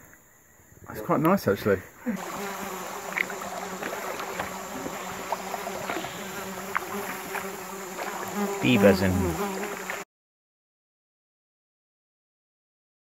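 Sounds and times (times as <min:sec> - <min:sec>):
rainforest river ambience: 0:01.1 - 0:10.0
low insect buzz: 0:01.9 - 0:10.1.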